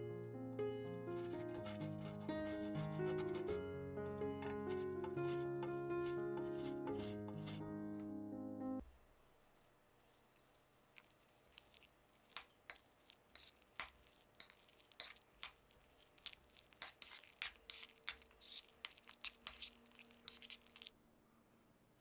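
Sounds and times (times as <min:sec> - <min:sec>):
metal spoon stirring in glass bowl: 0:12.7 - 0:15.6, 0:16.7 - 0:20.9.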